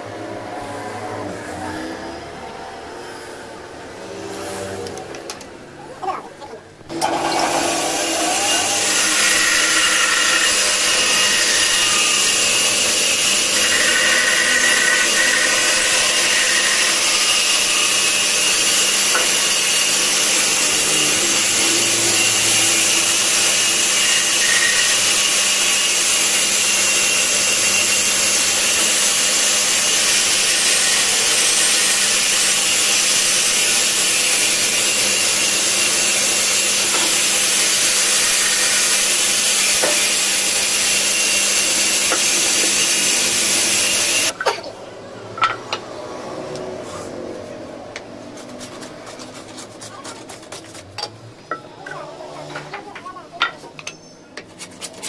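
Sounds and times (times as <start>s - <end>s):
band saw cutting wood: 6.9s - 44.5s, 45.7s - 51.0s.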